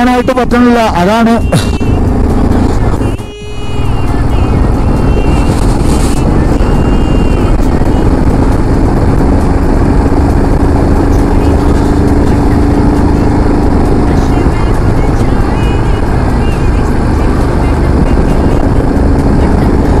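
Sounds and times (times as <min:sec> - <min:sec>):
motorcycle engine running: 0:00.0 - 0:20.0
short high tones: 0:03.0 - 0:08.1
wind noise on microphone: 0:03.9 - 0:20.0.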